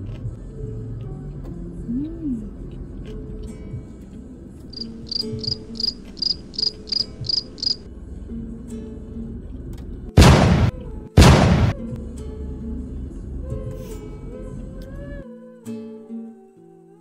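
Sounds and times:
soft background music: 0:00.0 - 0:17.0
cricket chirping: 0:04.7 - 0:07.9
loud bursts of noise: 0:10.2 - 0:11.8.

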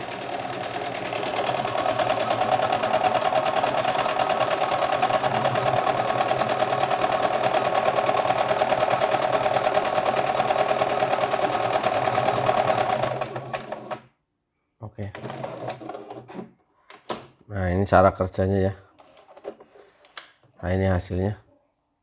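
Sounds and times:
sewing machine stitching: 0:00.0 - 0:14.1, 0:15.1 - 0:16.5.

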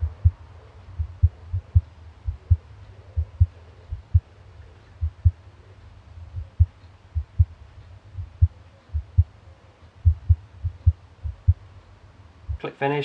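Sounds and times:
dog heartbeat: 0:00.0 - 0:05.4, 0:06.2 - 0:09.4, 0:10.0 - 0:11.6.

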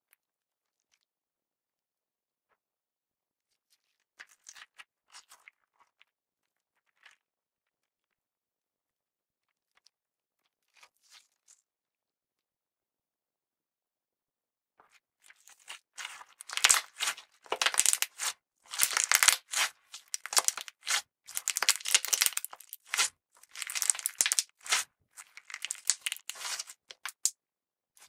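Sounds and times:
sticky slime crackling: 0:15.5 - 0:27.3.

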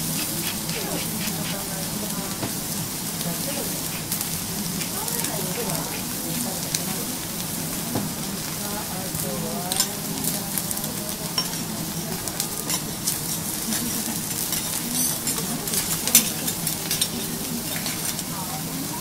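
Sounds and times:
steaks sizzling on griddle: 0:00.0 - 0:19.0.

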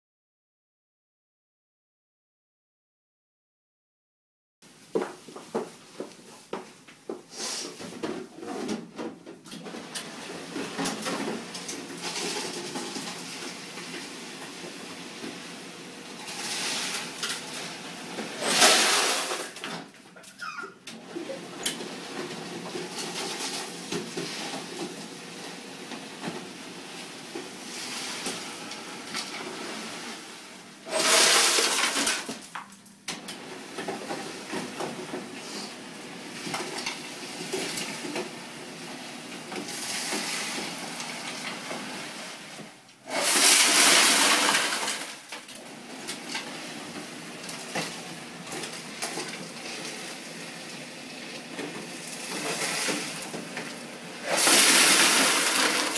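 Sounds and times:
ice cubes pouring into bucket: 0:11.8 - 0:13.6, 0:18.3 - 0:19.6, 0:27.6 - 0:32.4, 0:39.6 - 0:41.6, 0:43.1 - 0:45.3, 0:51.9 - 0:53.3, 0:54.2 - 0:55.9
ice machine clicks and rattles: 0:43.2 - 0:45.4, 0:54.3 - 0:55.9.

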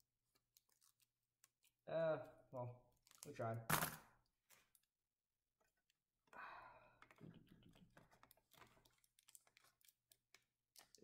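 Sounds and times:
tape rustling: 0:00.1 - 0:01.8, 0:07.7 - 0:11.0.

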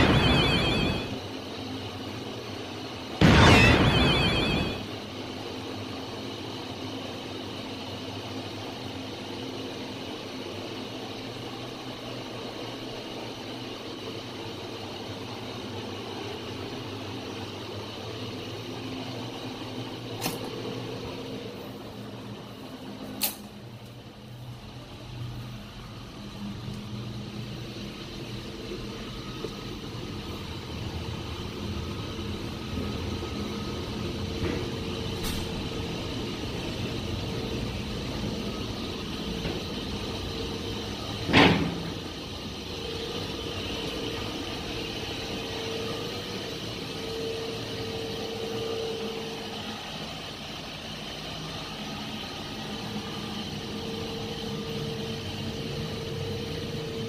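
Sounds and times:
engine-room machinery drone: 0:00.0 - 0:57.0.

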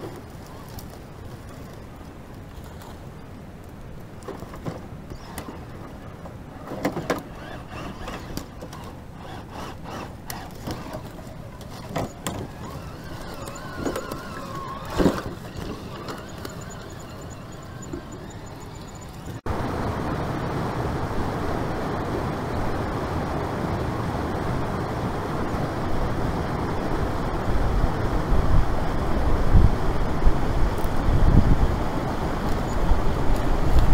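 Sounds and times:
creek rushing: 0:00.0 - 0:33.9
faint motor whine: 0:00.0 - 0:33.9
toy car knocking on rocks and wood: 0:06.7 - 0:18.3.

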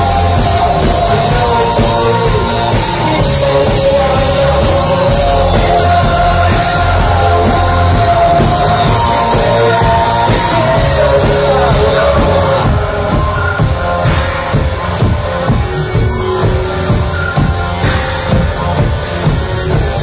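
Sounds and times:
person singing: 0:00.0 - 0:15.2
electronic rock band playing live: 0:00.0 - 0:20.0.

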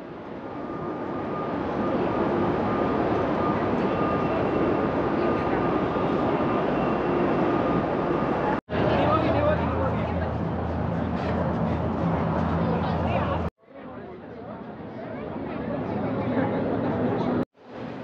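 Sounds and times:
jet aircraft engine whining: 0:00.0 - 0:13.5.

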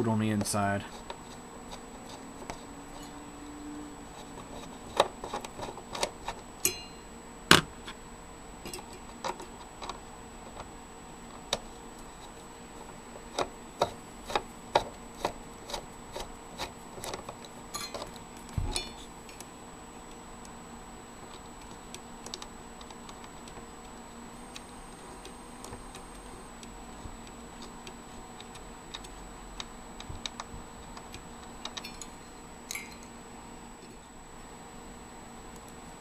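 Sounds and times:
screwdriver clicking and scraping metal: 0:13.3 - 0:19.4, 0:27.2 - 0:33.1.

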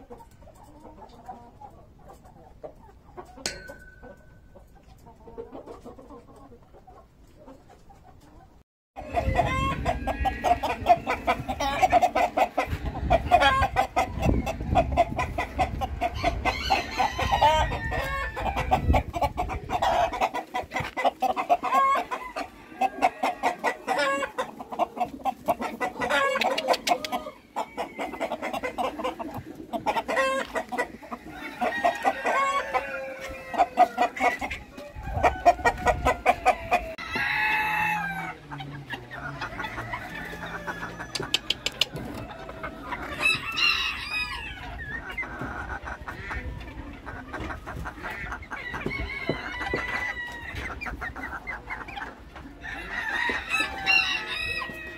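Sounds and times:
chickens clucking: 0:00.0 - 0:54.9
roosters crowing: 0:09.0 - 0:45.0, 0:48.4 - 0:50.9, 0:52.5 - 0:54.9.

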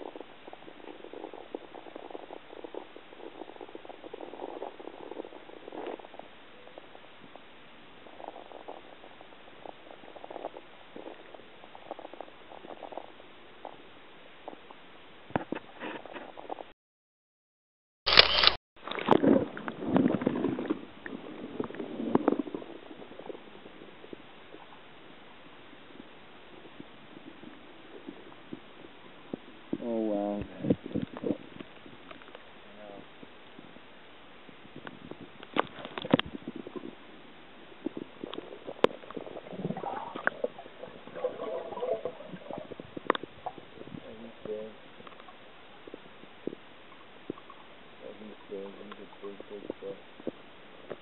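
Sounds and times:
muffled underwater rumbling: 0:00.0 - 0:16.7, 0:18.1 - 0:51.0
underwater knocks and clicks: 0:34.8 - 0:36.9, 0:37.8 - 0:44.0.

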